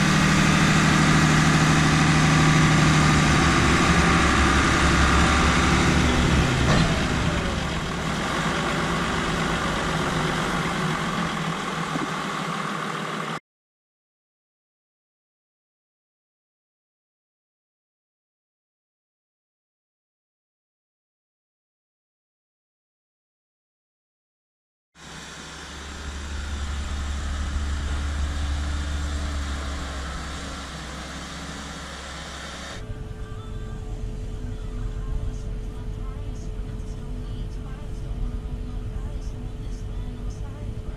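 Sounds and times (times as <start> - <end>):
diesel engine rumbling: 0.0 - 13.4, 25.0 - 40.9.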